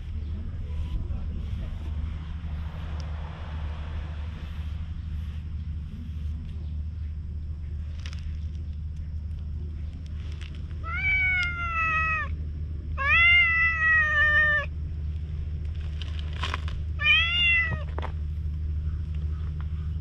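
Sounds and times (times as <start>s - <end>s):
low rumble: 0.0s - 20.0s
cat meowing: 10.8s - 12.3s, 13.0s - 14.7s, 17.0s - 17.9s.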